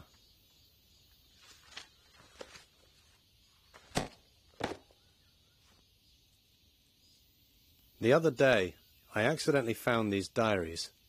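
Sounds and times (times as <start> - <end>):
paper pages turning: 1.4 - 2.9.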